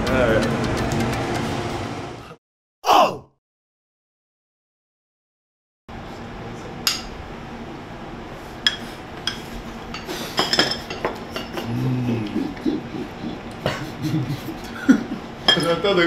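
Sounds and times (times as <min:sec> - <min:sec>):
spoons clinking on dishes: 0:08.7 - 0:11.6, 0:15.5 - 0:15.8
person humming: 0:11.6 - 0:13.9.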